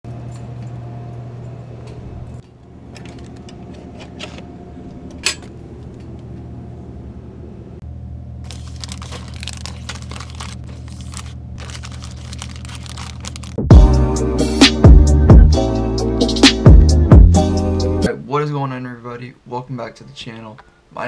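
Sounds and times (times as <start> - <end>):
vending machine low hum: 0.1 - 13.8
snack wrappers crinkling: 8.4 - 13.7.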